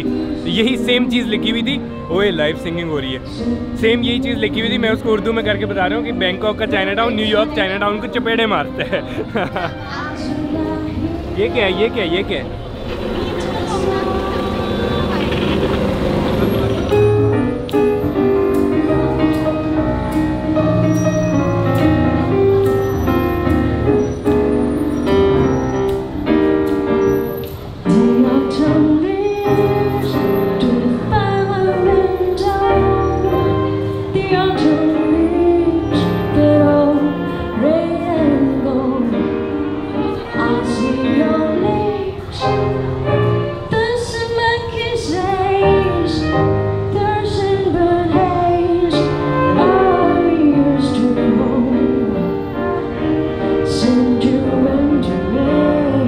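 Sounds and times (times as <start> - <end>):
violin accompaniment: 4.3 - 20.8
woman singing a slow song: 9.9 - 11.5, 27.9 - 42.7, 43.6 - 52.4, 53.6 - 56.0.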